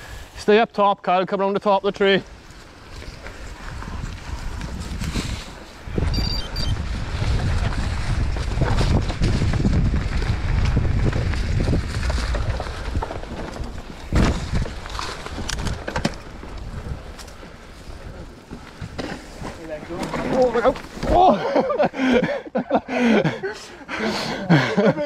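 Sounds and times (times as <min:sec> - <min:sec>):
wind rumbling on microphone: 0:02.2 - 0:19.6
bike rattling: 0:02.3 - 0:21.9.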